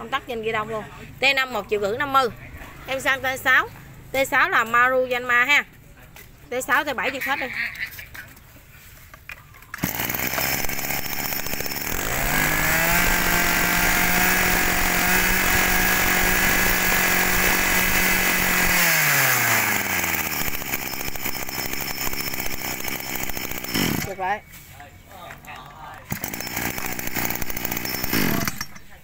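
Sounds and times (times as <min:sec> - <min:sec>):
brush cutter engine revving: 0:09.8 - 0:24.4, 0:26.1 - 0:29.0.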